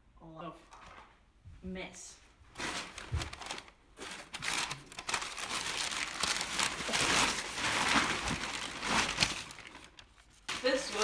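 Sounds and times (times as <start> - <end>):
packing paper crumpling: 2.5 - 11.0.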